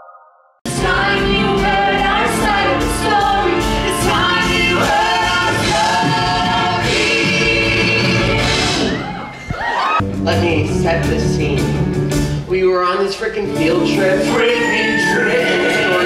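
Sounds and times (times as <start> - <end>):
live band playing: 0.7 - 16.0
cast singing in harmony: 14.3 - 16.0.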